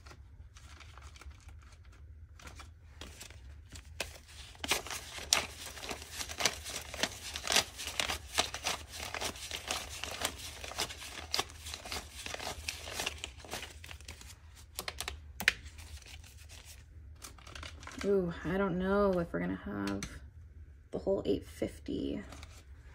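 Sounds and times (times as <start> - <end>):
paper bills rustling: 0.0 - 18.1.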